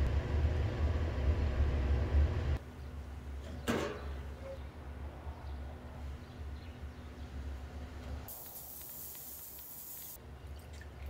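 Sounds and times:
ultrasonic cleaner hissing: 0:08.3 - 0:10.2.

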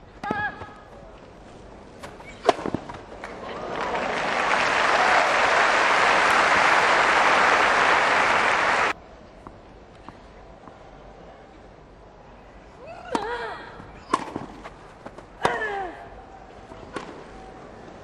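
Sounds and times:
crowd applause: 0:03.2 - 0:09.0.

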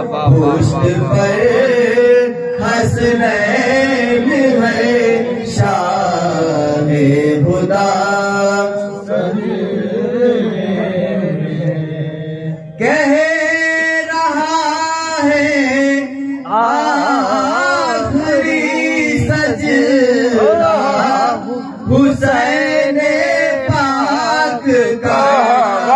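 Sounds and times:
man chanting melodically: 0:00.0 - 0:25.9.

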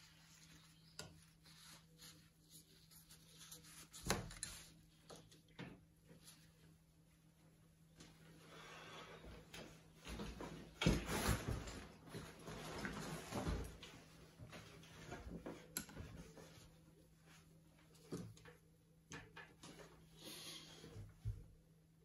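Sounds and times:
brushes tapping and scraping: 0:00.0 - 0:06.5.

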